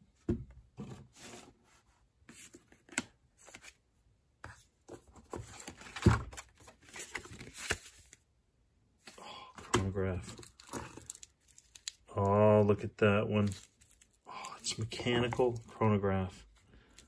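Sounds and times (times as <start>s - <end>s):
paper crinkling: 10.3s - 12.3s, 13.4s - 15.8s.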